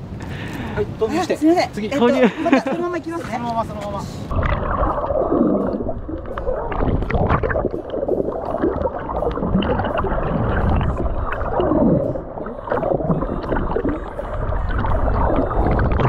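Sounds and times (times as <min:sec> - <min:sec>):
low rumble: 0:04.2 - 0:16.0
sea water sloshing and gurgling: 0:04.2 - 0:16.0.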